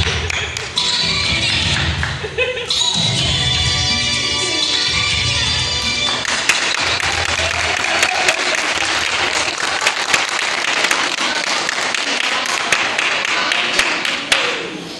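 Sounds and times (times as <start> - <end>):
audience applauding: 6.1 - 14.6.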